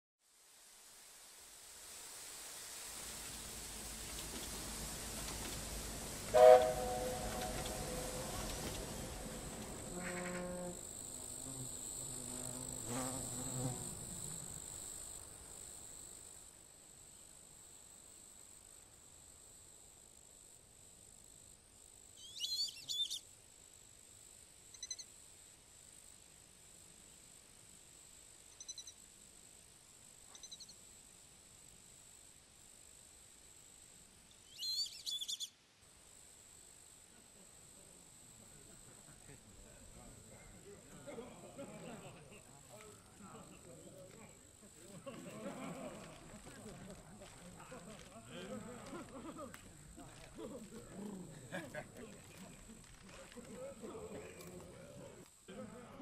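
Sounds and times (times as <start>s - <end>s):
low hiss: 0.2s - 56.0s
loud whistle-like tone: 6.3s - 9.0s
high-pitched insect drone: 6.8s - 16.5s, 24.7s - 25.2s, 28.5s - 29.2s, 30.3s - 30.8s
short bird chirps: 22.2s - 23.2s, 28.6s - 28.9s, 30.3s - 30.8s, 34.4s - 35.5s.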